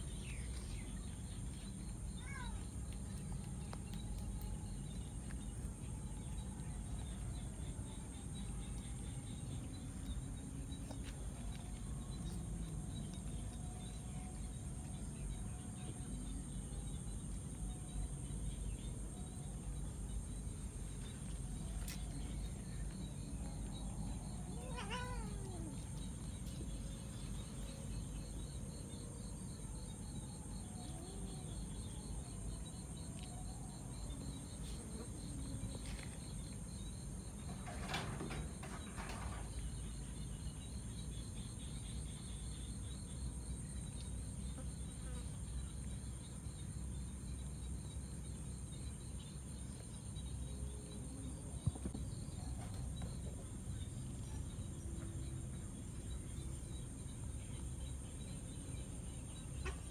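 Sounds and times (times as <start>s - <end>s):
high-pitched insect chorus: 0.0s - 59.9s
pulsing insect chirp: 0.0s - 59.9s
cat meowing: 24.6s - 25.7s.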